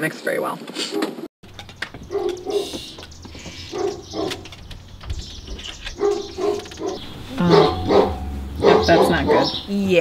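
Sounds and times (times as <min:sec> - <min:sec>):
large dog barking: 0:02.1 - 0:02.8, 0:03.7 - 0:04.5, 0:05.9 - 0:09.7.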